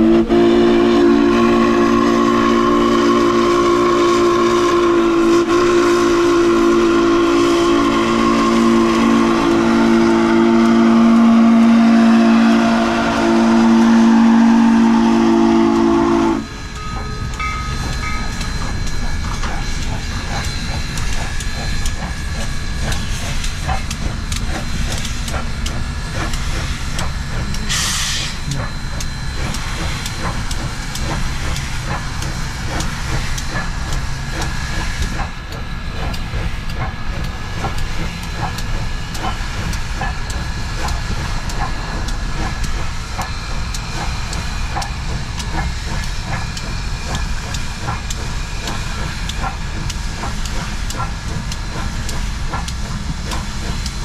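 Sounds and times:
steam locomotive chime whistle: 0.0 - 22.0, 27.0 - 30.5
steam hiss: 0.0 - 54.0
steam locomotive chuffing: 0.0 - 54.0.

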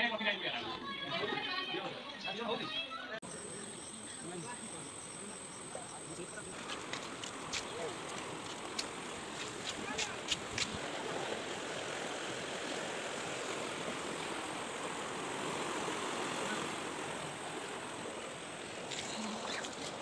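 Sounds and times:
fast-flowing river rushing: 6.6 - 20.0.

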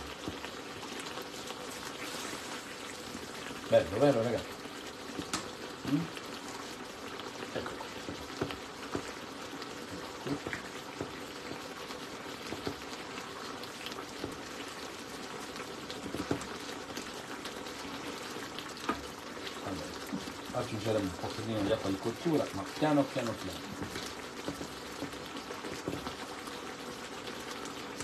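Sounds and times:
sauce sizzling and bubbling: 0.0 - 28.0.

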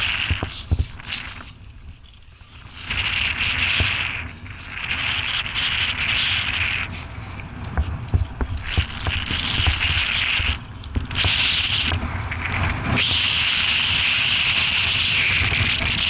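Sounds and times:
steady high hiss: 0.0 - 16.0
wind rumble on microphone: 0.0 - 16.0
climbing gear clinking: 0.8 - 2.7, 6.9 - 11.2.

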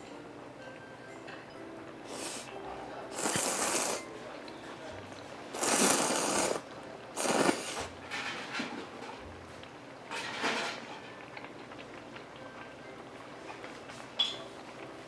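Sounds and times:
noodles slurped loudly: 3.1 - 4.0, 5.6 - 6.6, 7.2 - 7.9.

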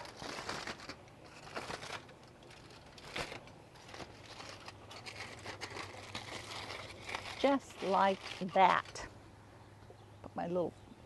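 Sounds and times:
aluminium foil crinkling: 0.0 - 9.2.

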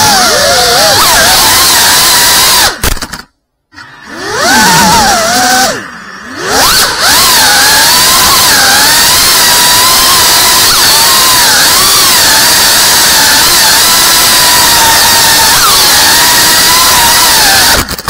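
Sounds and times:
drone propellers whining: 0.0 - 2.8, 3.7 - 18.0.

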